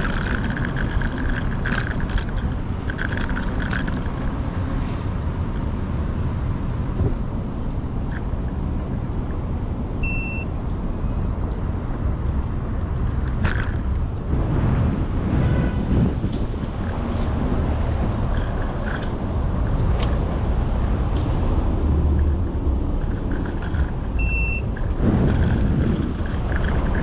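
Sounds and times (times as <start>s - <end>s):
scooter tyre noise: 0.0s - 9.4s, 12.0s - 27.0s
short high beep: 10.0s - 10.5s
wind on microphone: 12.0s - 27.0s.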